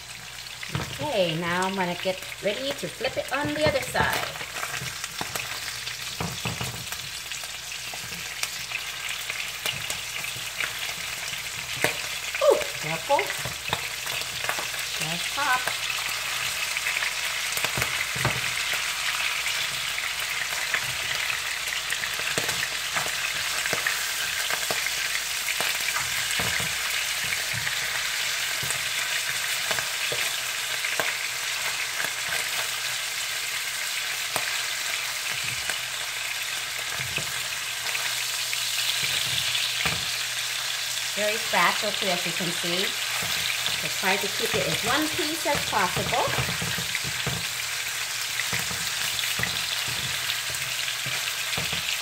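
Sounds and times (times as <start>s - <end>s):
fish sizzling in frying pan: 0.0s - 52.0s.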